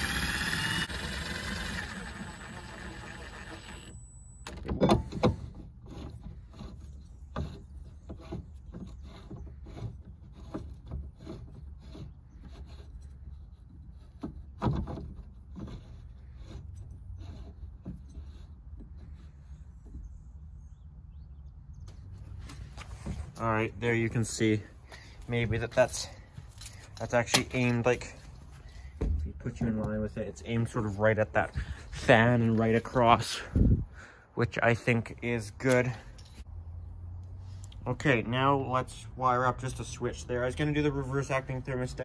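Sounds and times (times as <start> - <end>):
power drill running: 0.0 - 4.5
knocks and clunks: 28.8 - 30.2.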